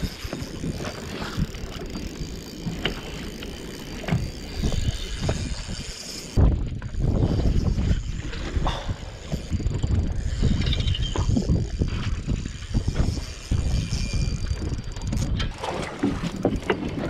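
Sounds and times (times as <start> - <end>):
water slapping boat hull: 0.0 - 17.0.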